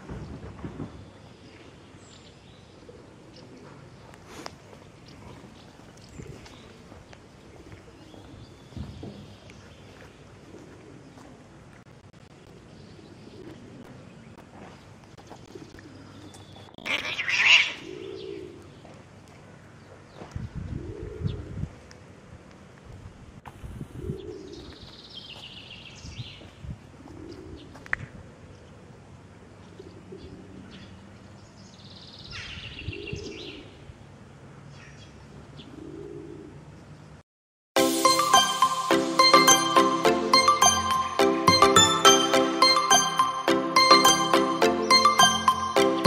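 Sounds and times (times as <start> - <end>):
pigeons cooing: 10.4 - 11.2, 15.4 - 18.7, 20.8 - 21.5, 27.0 - 27.8, 35.6 - 36.6.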